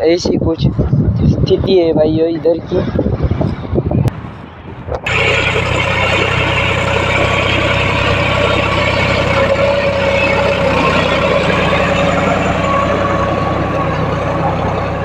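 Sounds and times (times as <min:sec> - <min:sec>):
tractor diesel engine under load: 0:04.8 - 0:15.0.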